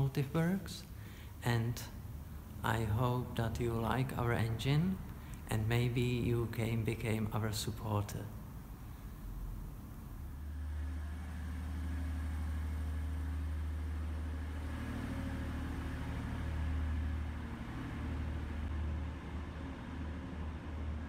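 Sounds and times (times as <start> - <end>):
diesel engine low rumble: 0.0 - 21.0.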